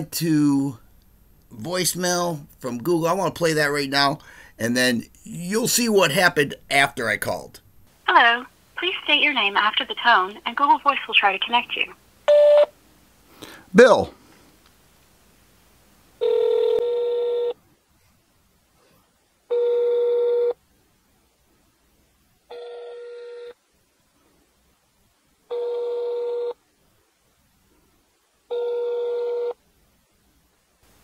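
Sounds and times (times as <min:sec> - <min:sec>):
telephone ringback tone: 0:16.2 - 0:17.6, 0:19.5 - 0:20.6, 0:22.5 - 0:23.6, 0:25.5 - 0:26.6, 0:28.5 - 0:29.6.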